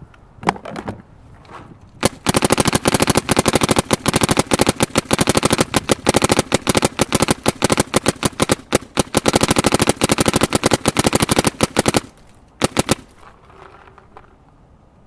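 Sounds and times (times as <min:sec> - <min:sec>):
paintball marker firing rapidly: 0:02.0 - 0:13.2.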